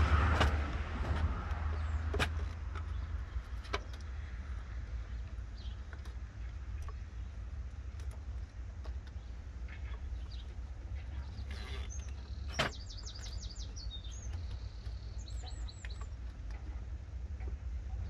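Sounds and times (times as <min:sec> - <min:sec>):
low background rumble: 0:00.0 - 0:18.0
small bird chirping: 0:09.0 - 0:16.6.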